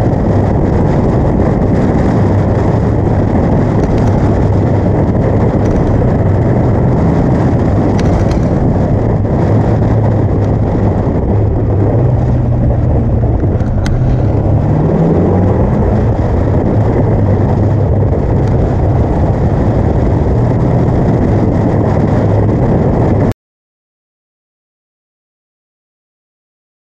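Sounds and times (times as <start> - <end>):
car engine running hard: 0.0 - 23.3
wind and road noise: 0.0 - 23.3.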